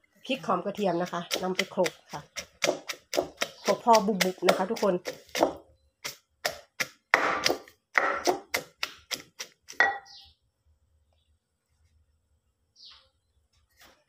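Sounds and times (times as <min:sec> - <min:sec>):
pestle knocking in clay mortar: 0:00.7 - 0:10.1.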